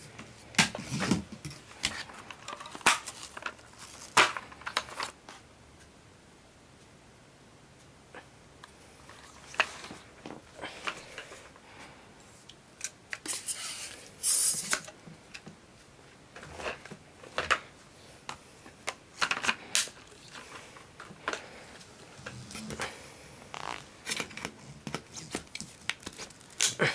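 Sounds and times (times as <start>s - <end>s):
plastic scraping: 19.2s - 26.9s.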